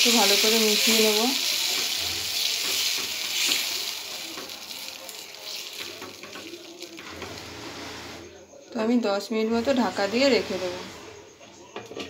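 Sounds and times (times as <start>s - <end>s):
lentils sizzling in hot oil: 0.0s - 7.1s.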